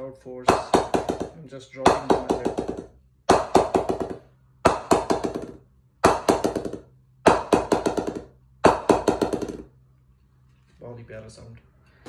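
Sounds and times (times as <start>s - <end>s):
mallet bouncing on cricket bat: 0.5s - 9.7s.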